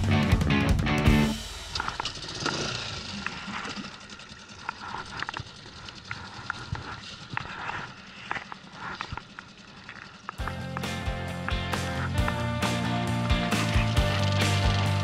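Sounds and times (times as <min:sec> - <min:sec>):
hiss of water and wind: 0:02.2 - 0:10.4.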